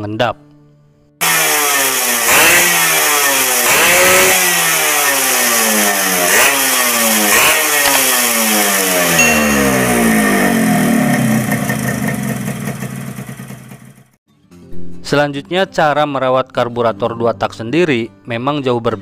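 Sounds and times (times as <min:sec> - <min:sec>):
motorcycle engine revving: 0:01.2 - 0:14.2.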